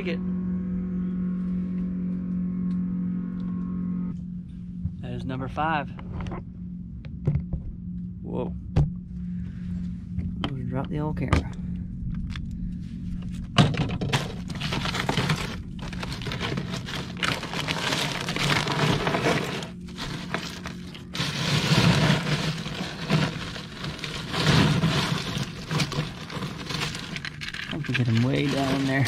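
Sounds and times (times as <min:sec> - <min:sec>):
low hum: 0:00.0 - 0:29.0
ice cubes crunching and rattling: 0:13.9 - 0:29.0.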